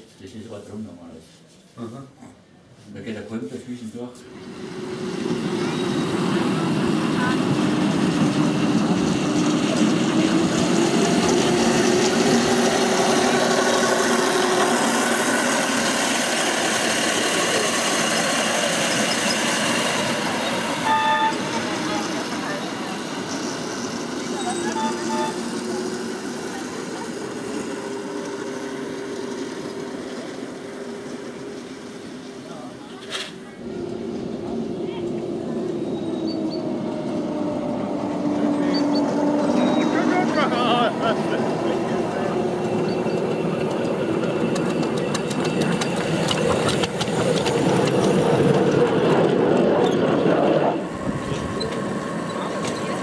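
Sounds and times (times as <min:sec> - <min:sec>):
miniature locomotive motor droning: 0:04.4 - 0:33.0, 0:33.6 - 0:53.0
wheels clicking over rail joints: 0:41.6 - 0:53.0.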